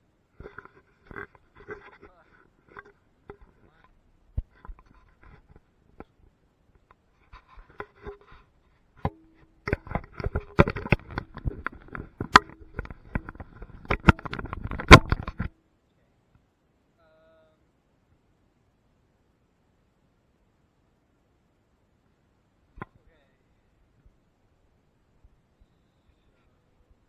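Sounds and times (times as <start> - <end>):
faint steady hum: 0.0 - 27.0
scraping on wood: 0.4 - 6.1, 7.2 - 15.5.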